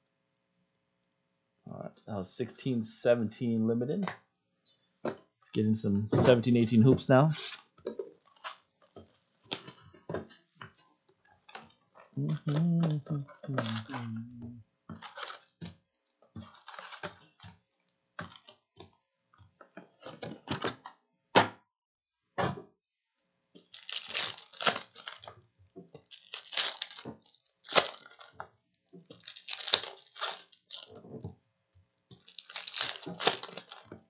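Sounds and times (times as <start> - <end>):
wrappers being torn open: 8.2 - 8.9, 12.3 - 14.2, 15.0 - 15.6, 16.4 - 17.4, 23.6 - 25.4, 26.0 - 28.4, 29.1 - 31.0, 32.1 - 34.0
foil wrappers crinkling: 8.2 - 9.8, 12.3 - 14.3, 14.9 - 15.7, 16.4 - 17.5, 23.6 - 28.4, 29.0 - 31.0, 32.1 - 34.0.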